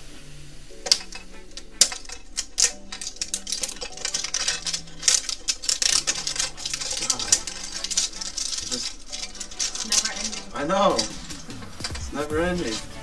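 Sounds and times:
plastic shrink wrap crinkling: 0:00.8 - 0:13.0.

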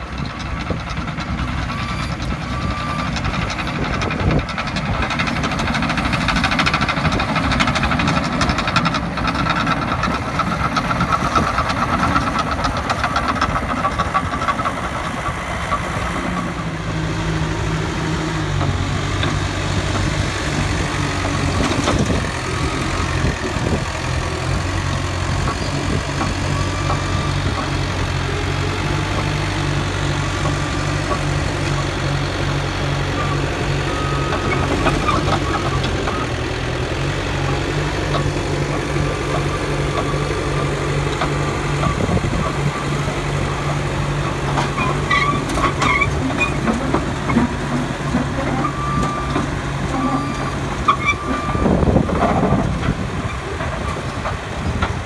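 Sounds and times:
dozer diesel engine clanking: 0:00.0 - 0:55.0.

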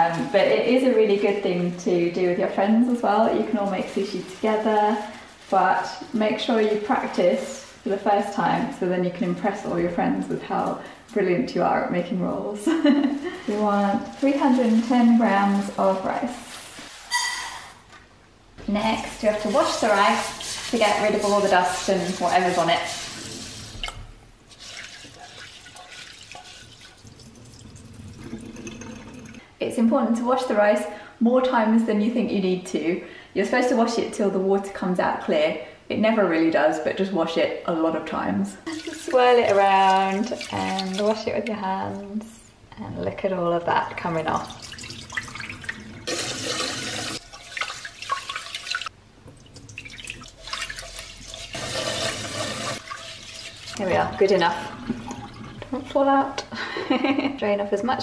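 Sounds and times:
water poured into metal sink: 0:19.1 - 0:29.4, 0:38.7 - 0:41.2, 0:44.4 - 0:56.0
tap water running into saucepan: 0:19.2 - 0:29.4, 0:38.7 - 0:41.3, 0:44.3 - 0:56.0.

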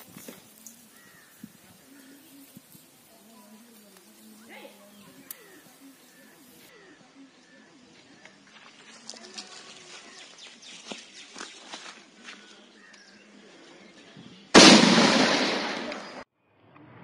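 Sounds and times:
fuse crackling: 0:00.0 - 0:06.7
firecracker bang: 0:14.6 - 0:16.2.

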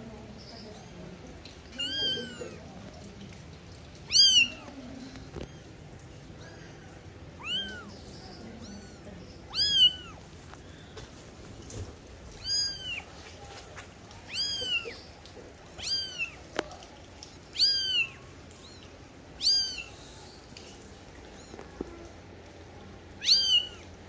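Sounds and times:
kitten mewing: 0:01.8 - 0:02.6, 0:04.1 - 0:05.6, 0:06.4 - 0:10.2, 0:12.4 - 0:13.1, 0:14.3 - 0:15.0, 0:15.8 - 0:16.4, 0:17.6 - 0:20.0, 0:23.2 - 0:23.8.

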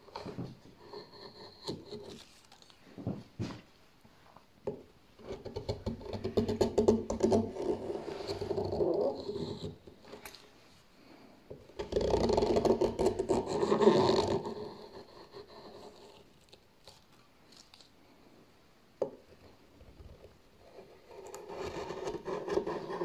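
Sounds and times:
gouge scraping wood: 0:00.1 - 0:02.7, 0:05.2 - 0:09.9, 0:11.8 - 0:16.3, 0:20.6 - 0:23.0.

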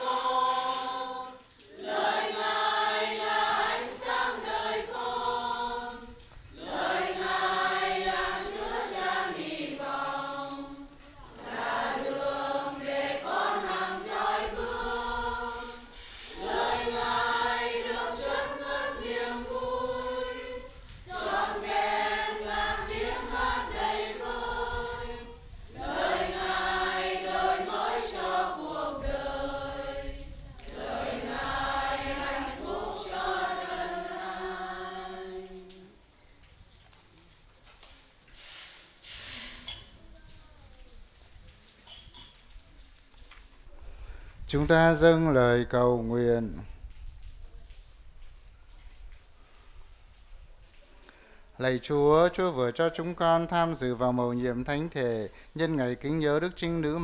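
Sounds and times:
choir singing a hymn: 0:00.0 - 0:36.0.

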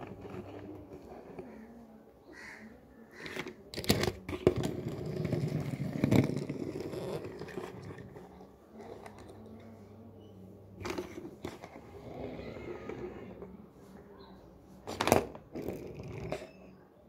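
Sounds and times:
toy car wheels rolling on plastic: 0:00.0 - 0:01.8, 0:03.2 - 0:09.9, 0:10.8 - 0:13.5, 0:14.8 - 0:16.7
toy cars clicking together: 0:03.2 - 0:07.7.

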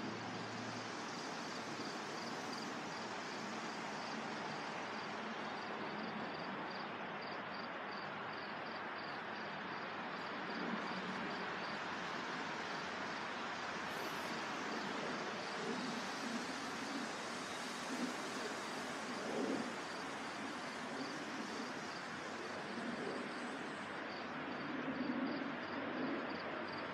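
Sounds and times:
wind rustling tree leaves: 0:00.0 - 0:07.0, 0:09.5 - 0:24.7.

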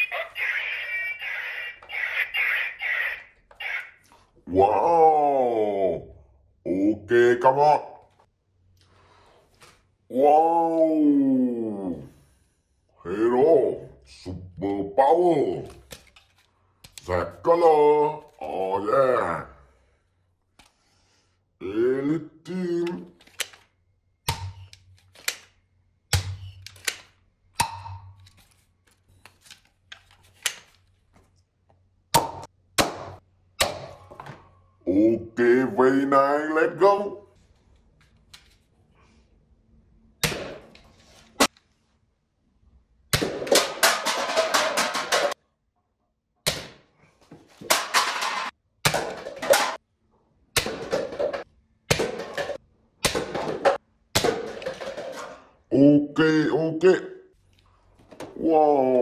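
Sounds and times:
paper cups clattering: 0:43.4 - 0:45.4, 0:47.4 - 0:49.8, 0:50.7 - 0:55.6.

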